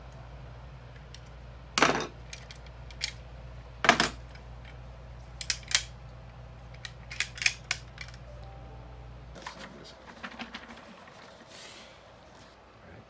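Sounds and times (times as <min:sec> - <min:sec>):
metal parts clicking and knocking: 0:05.4 - 0:05.9, 0:06.7 - 0:08.2
low hum: 0:08.2 - 0:09.8.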